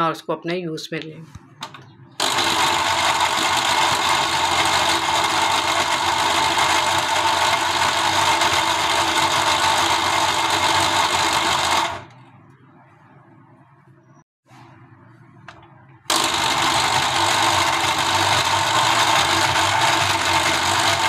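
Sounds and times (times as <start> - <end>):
mixer grinder motor chopping: 2.2 - 12.1, 16.1 - 21.0.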